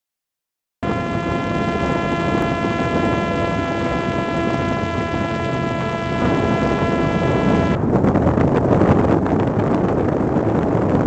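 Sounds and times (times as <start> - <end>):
drone motor and propeller whine: 0.8 - 7.8
wind noise rushing: 0.8 - 11.0.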